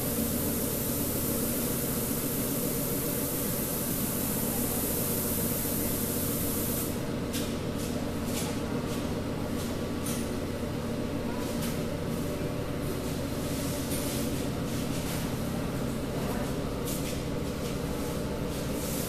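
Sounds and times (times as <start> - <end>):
paint spray gun hissing: 0.0 - 7.0
steady machine hum: 0.0 - 19.0.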